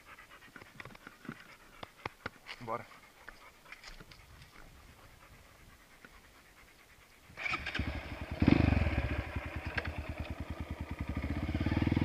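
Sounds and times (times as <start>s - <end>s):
dirt bike engine starting and idling: 7.4s - 12.0s.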